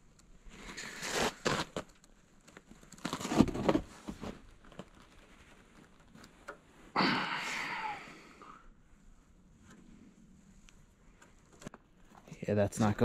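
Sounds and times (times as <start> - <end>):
metal rod scraping and crunching: 0.6 - 3.9.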